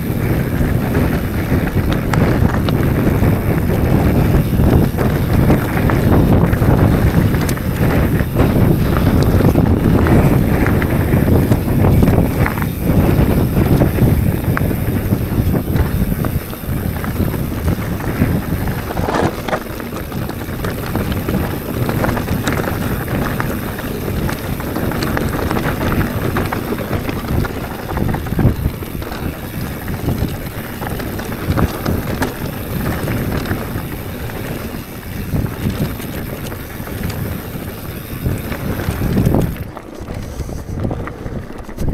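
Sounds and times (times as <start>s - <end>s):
bike rattling over rough ground: 0.0s - 41.9s
bike tyres on dirt: 0.0s - 41.9s
wind noise on microphone: 0.0s - 41.9s.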